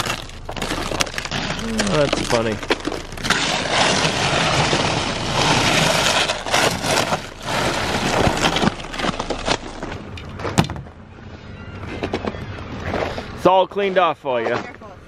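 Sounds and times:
ice pieces clicking and knocking: 0:00.0 - 0:09.7
ice scraper scraping windshield: 0:00.0 - 0:10.0.

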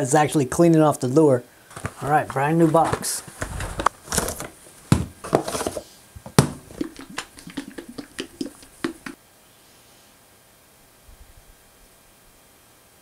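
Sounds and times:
plastic bottles knocking: 0:01.7 - 0:09.2
faint hiss: 0:05.6 - 0:13.0.

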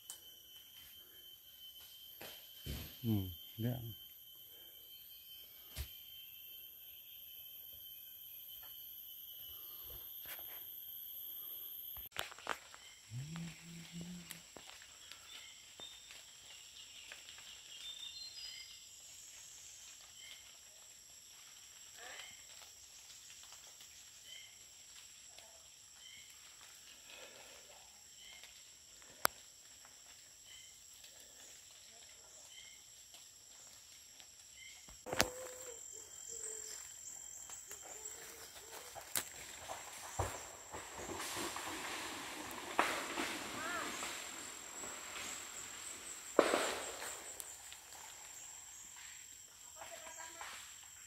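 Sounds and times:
high-pitched insect drone: 0:00.0 - 0:51.0
walking through leaf litter: 0:35.3 - 0:45.5.

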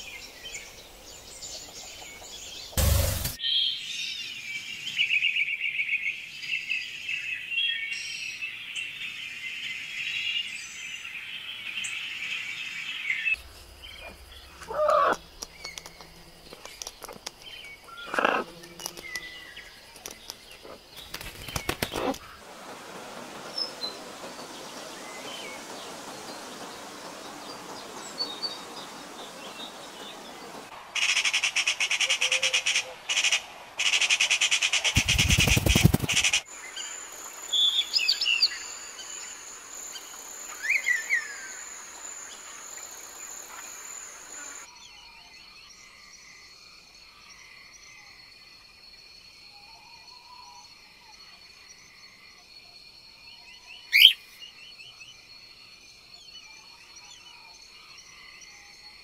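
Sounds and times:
songbird calls and chirps: 0:00.0 - 0:02.8, 0:03.4 - 0:22.4, 0:23.4 - 0:59.0
loud sharp bird call: 0:53.9 - 0:54.2.

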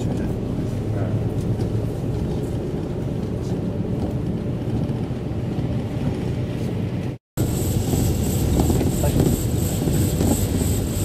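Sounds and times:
road and engine rumble in cabin: 0:00.0 - 0:11.0
hiss: 0:07.4 - 0:11.0.

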